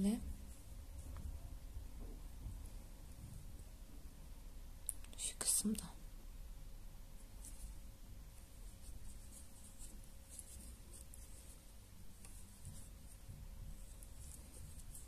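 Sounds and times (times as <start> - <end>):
crochet hook scratching yarn: 7.2 - 15.0.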